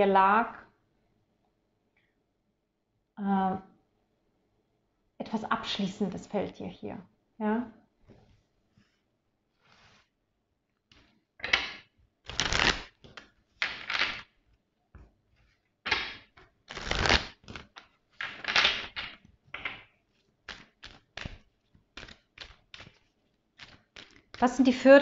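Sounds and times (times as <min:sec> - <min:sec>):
cards being shuffled: 0:11.0 - 0:14.4, 0:15.4 - 0:24.5.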